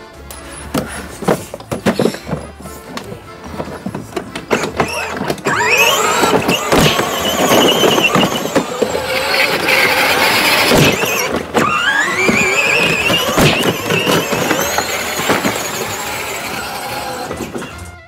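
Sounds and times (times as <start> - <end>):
tyres squealing: 0.3 - 18.0
car engine revving: 5.4 - 17.6.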